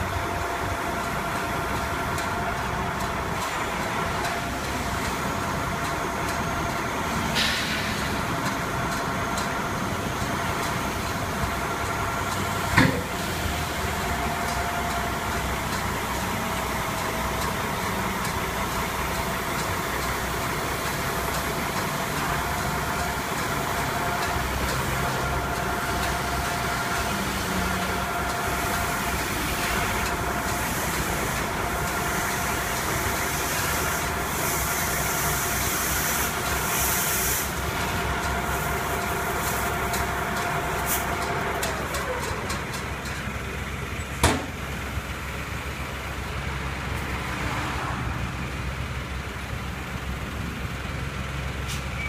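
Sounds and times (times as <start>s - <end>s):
milling machine engine running: 0.0s - 47.8s
hiss: 7.2s - 8.4s, 28.6s - 39.9s.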